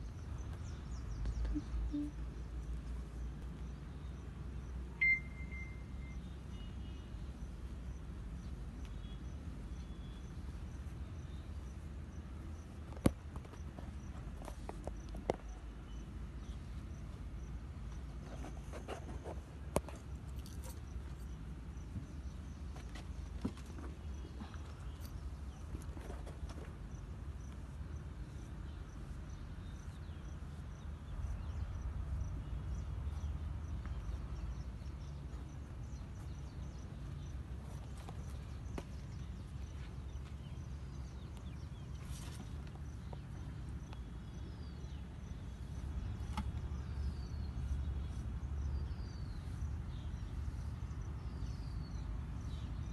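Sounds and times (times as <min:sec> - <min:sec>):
faint high chirp: 0:00.9 - 0:02.8, 0:04.1 - 0:07.5
short falling chirps: 0:05.0 - 0:05.9
steady low rumble: 0:26.7 - 0:42.0.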